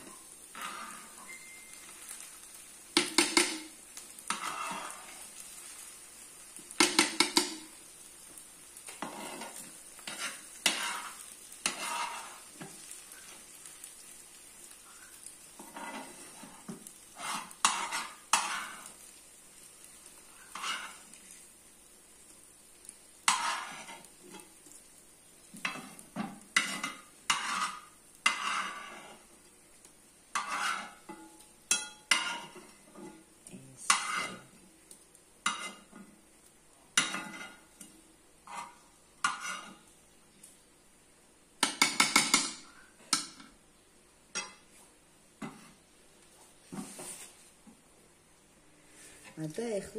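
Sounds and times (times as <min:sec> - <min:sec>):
metal spoon scraping frying pan: 0:00.0 - 0:05.8, 0:08.9 - 0:13.5, 0:14.9 - 0:19.0, 0:20.2 - 0:21.2, 0:23.2 - 0:24.6, 0:25.6 - 0:29.3, 0:30.3 - 0:34.5, 0:35.4 - 0:36.1, 0:37.0 - 0:39.9
oil sizzling: 0:00.0 - 0:49.9.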